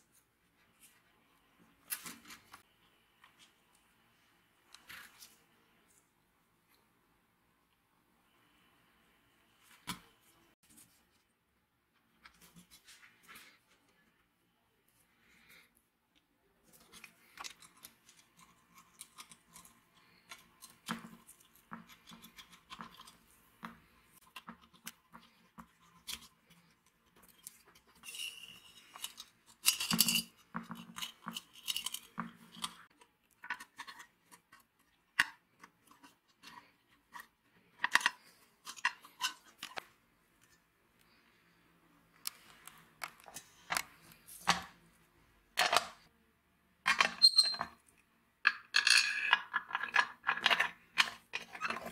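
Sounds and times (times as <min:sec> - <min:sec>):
metal parts clicking and scraping: 0:25.6 - 0:34.0, 0:46.9 - 0:47.8, 0:48.5 - 0:51.9.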